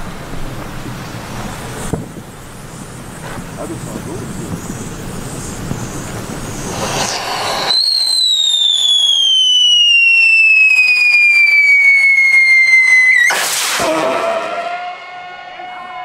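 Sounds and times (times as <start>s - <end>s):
firework crack: 0.0s - 14.7s
firework hiss: 0.1s - 14.0s
firework whistle falling in pitch: 7.0s - 16.0s.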